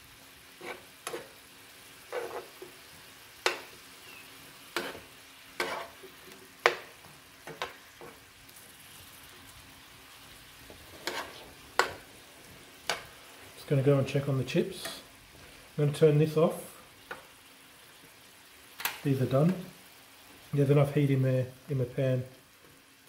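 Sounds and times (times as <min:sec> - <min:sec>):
vegetables sizzling: 0:00.0 - 0:23.0
metal spoon scraping frying pan: 0:00.6 - 0:01.4, 0:02.0 - 0:02.8, 0:04.7 - 0:06.8, 0:10.8 - 0:12.1.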